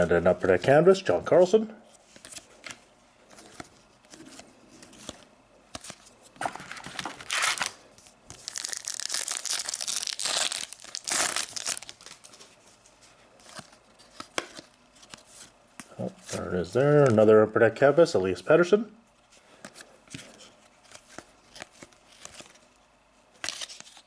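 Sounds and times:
cards rustling: 0:02.0 - 0:17.3, 0:19.5 - 0:22.7, 0:23.4 - 0:24.0
foil wrapper tearing and crinkling: 0:06.9 - 0:12.3.

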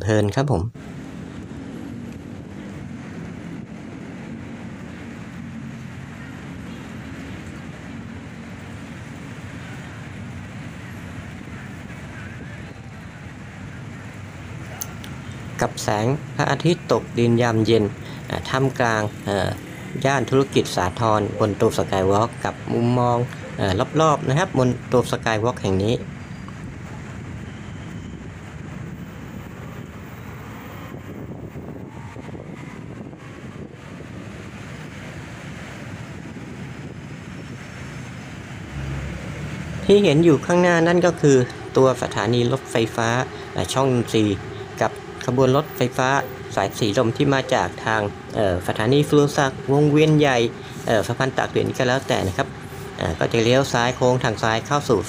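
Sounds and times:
city road traffic rumble: 0:00.0 - 0:55.0
wind on microphone: 0:00.8 - 0:15.7, 0:26.0 - 0:40.5.

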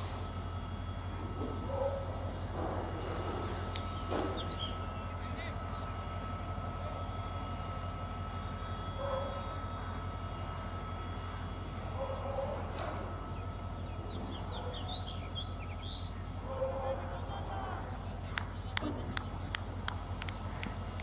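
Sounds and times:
low background hum: 0:00.0 - 0:21.0
bird chirping: 0:13.4 - 0:16.2
faint distant voices: 0:16.2 - 0:20.9.

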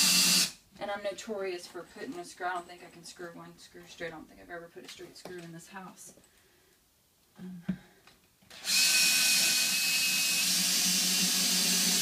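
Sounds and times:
drill driving screw into wood: 0:00.0 - 0:00.6, 0:08.5 - 0:12.0.

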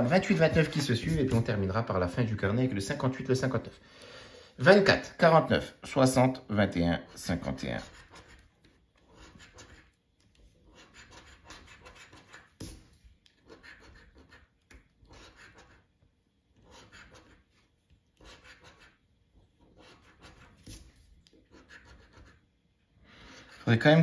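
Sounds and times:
coin scratching a lottery ticket: 0:07.6 - 0:10.0, 0:10.6 - 0:12.8, 0:13.4 - 0:15.9, 0:16.6 - 0:17.5, 0:18.2 - 0:19.0, 0:19.6 - 0:22.4.

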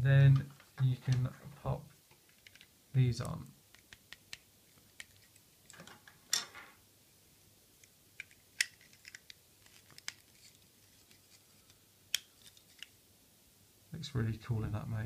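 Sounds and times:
plastic parts clicking: 0:02.3 - 0:06.0, 0:07.8 - 0:11.4.

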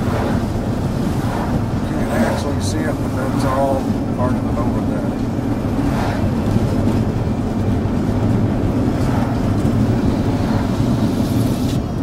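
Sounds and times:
engine and tyre hum: 0:00.0 - 0:12.0
wind rushing: 0:00.0 - 0:12.0.

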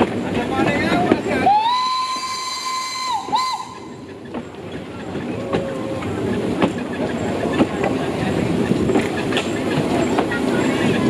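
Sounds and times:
locomotive rolling: 0:00.0 - 0:11.0
rail clicks: 0:00.0 - 0:11.0
steam whistle: 0:01.5 - 0:03.9.

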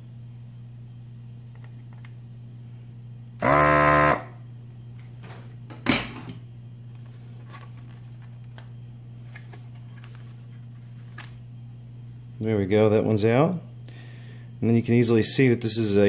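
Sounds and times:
steady low hum: 0:00.0 - 0:16.0
vacuum pump buzzing: 0:01.0 - 0:12.7.

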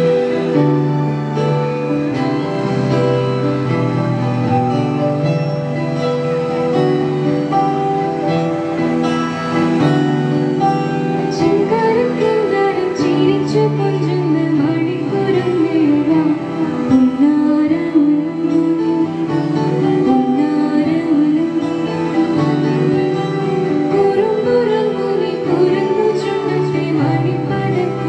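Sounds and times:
acoustic guitar chords: 0:00.0 - 0:28.0
keyboards playing chords: 0:00.0 - 0:28.0
girl singing: 0:11.4 - 0:19.1, 0:23.9 - 0:28.0.

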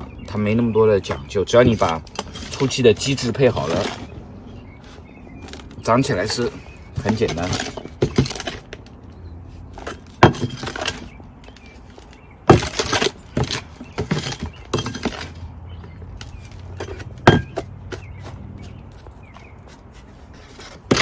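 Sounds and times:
plastic scoop digging soil: 0:01.5 - 0:04.1, 0:05.5 - 0:08.7.

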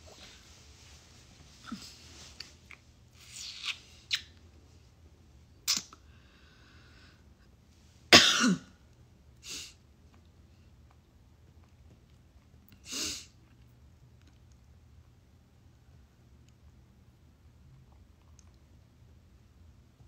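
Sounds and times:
person coughing: 0:08.1 - 0:08.8.

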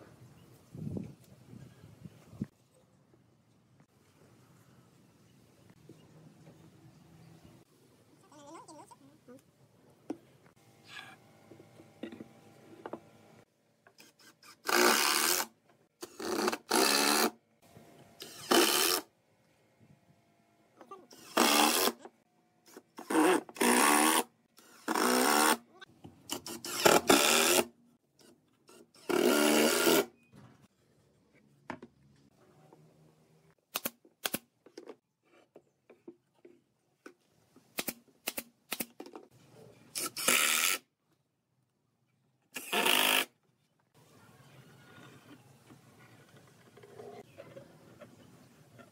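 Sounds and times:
power driver driving screws: 0:42.6 - 0:43.3.

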